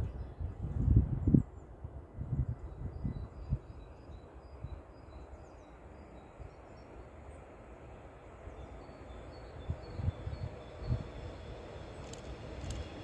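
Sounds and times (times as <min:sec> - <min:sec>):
diesel train rumble: 0:04.1 - 0:13.0.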